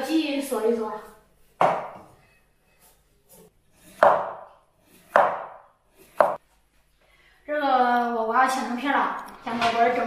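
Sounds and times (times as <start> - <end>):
cleaver chopping onto wooden board: 1.6 - 2.0, 4.0 - 4.5, 5.1 - 6.4.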